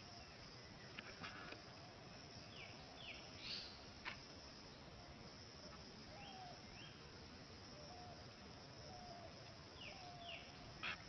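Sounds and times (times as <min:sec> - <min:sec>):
faint insect drone: 0:00.0 - 0:11.0.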